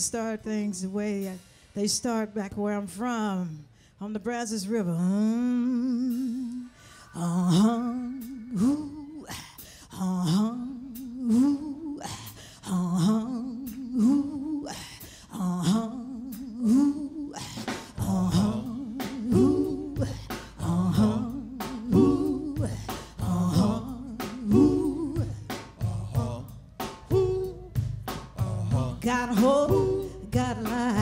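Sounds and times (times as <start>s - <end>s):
bass and band playing: 17.5s - 31.0s
woman humming vocal line: 27.1s - 27.8s.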